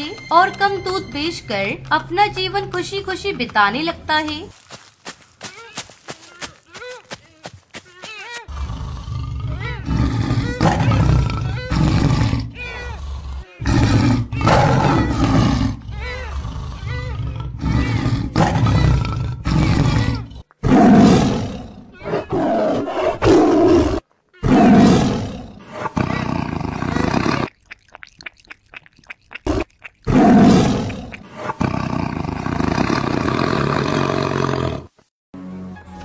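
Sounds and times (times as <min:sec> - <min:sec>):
tiger roaring and growling: 0:08.5 - 0:27.5, 0:29.5 - 0:34.9.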